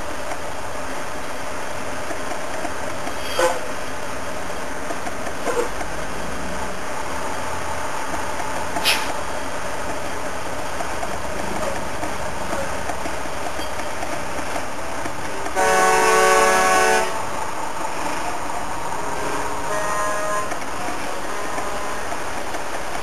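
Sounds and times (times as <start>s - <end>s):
trucks passing: 0.0s - 23.0s
truck air horn: 3.2s - 3.7s, 15.5s - 17.3s, 19.2s - 20.6s.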